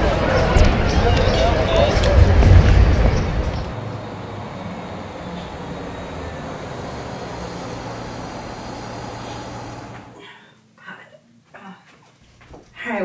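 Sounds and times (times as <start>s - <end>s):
traffic rumble: 0.0s - 10.2s.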